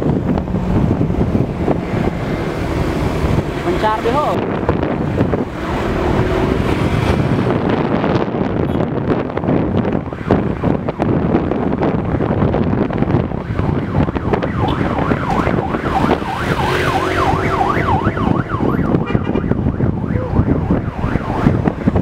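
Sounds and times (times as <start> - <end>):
driving rumble and wind noise: 0.0 - 22.0
siren yelping: 13.2 - 22.0.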